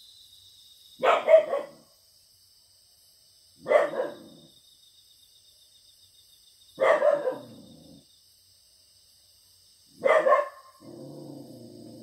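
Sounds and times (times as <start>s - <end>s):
crickets and insects chirping: 0.0s - 12.0s
dog barking loudly: 1.0s - 1.8s, 3.6s - 4.2s, 6.8s - 7.6s, 10.0s - 10.8s.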